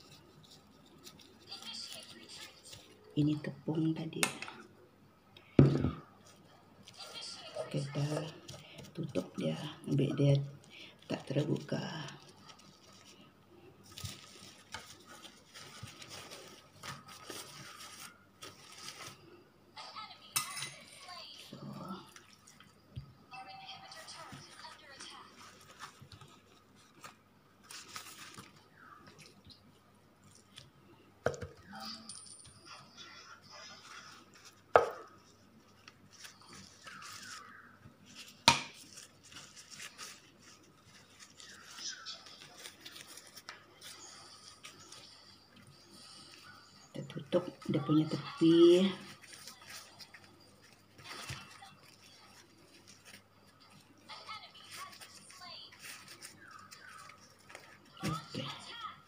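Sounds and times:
wrapper crinkling: 0.0 - 4.1, 6.2 - 19.4, 21.0 - 30.7, 33.2 - 59.0
plastic sheet rustling: 6.2 - 19.4, 23.7 - 29.4, 33.2 - 45.2, 47.0 - 58.9.

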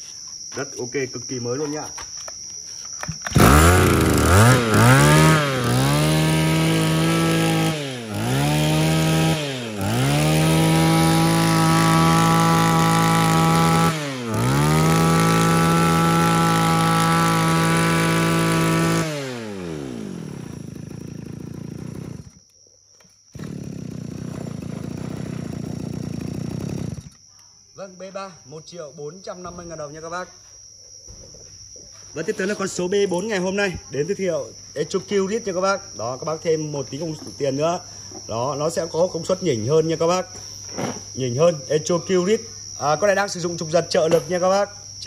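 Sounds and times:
brush cutter engine revving: 3.2 - 22.4, 23.3 - 27.2.

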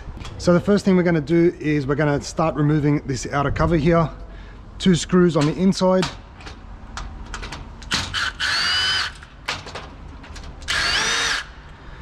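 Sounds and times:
power drill motor whine: 8.1 - 9.3, 10.7 - 11.6.

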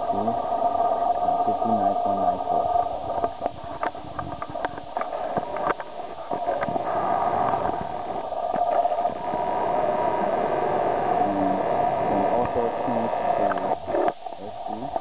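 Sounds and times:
cooling fans humming: 0.0 - 15.0.

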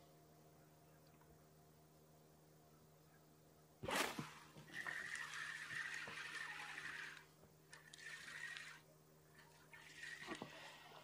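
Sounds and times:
fishing reel whirring: 4.7 - 11.0.

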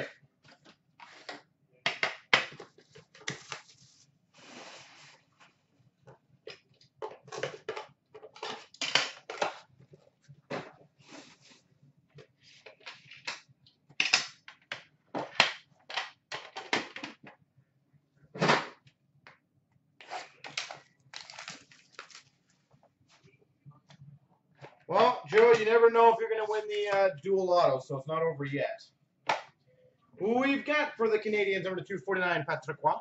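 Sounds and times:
wrapper rustling and crackling: 20.2 - 22.6.

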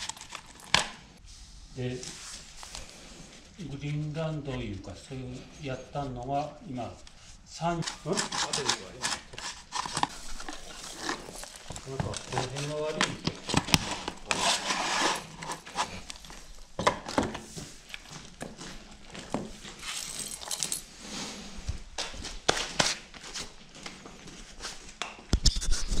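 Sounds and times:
chains jangling on concrete: 19.6 - 21.0.

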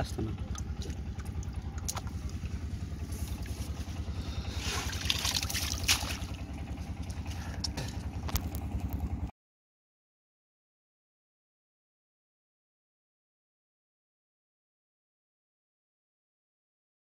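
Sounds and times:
small engine idling: 0.0 - 9.3
water splash: 4.5 - 6.6.

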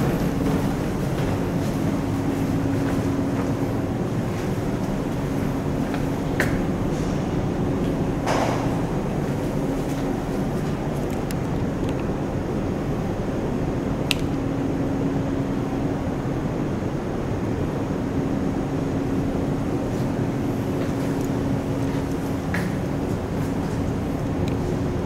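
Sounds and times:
ferry engines droning: 0.0 - 25.0
sharp click: 14.1 - 14.4.

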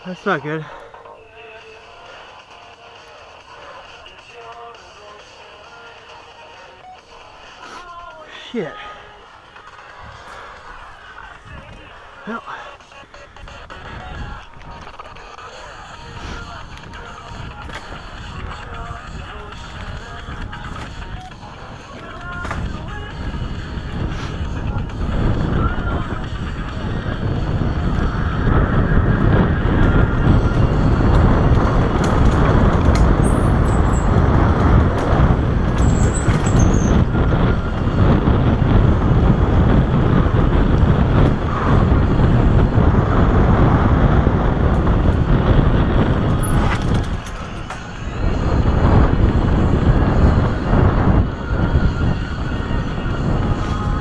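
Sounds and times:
wind buffeting microphone: 9.9 - 12.2, 12.9 - 54.0
bike tyres rattling on dirt: 13.4 - 52.1.

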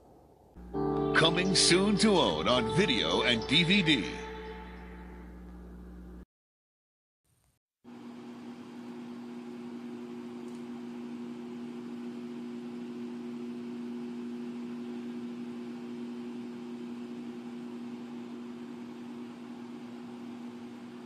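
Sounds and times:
low tones humming: 0.5 - 6.2.

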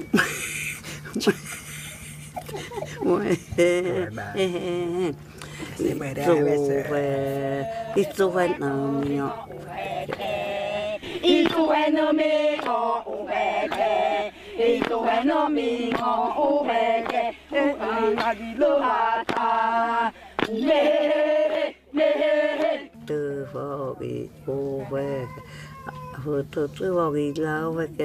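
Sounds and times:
voices chanting together: 5.8 - 24.1.

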